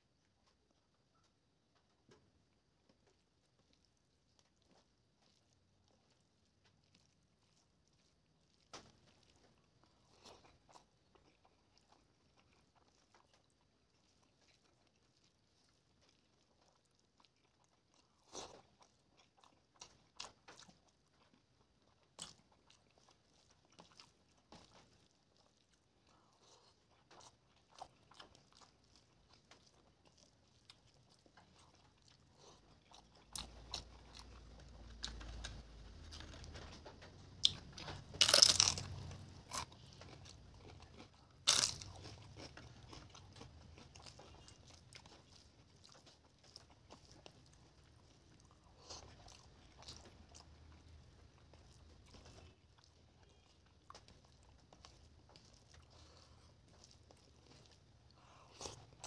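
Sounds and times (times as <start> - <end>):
person chewing: 2.6 - 59.0
crunchy bites: 37.4 - 45.2.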